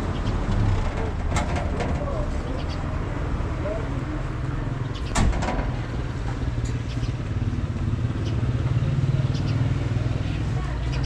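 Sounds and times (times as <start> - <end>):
vehicle engine running: 5.7 - 11.0.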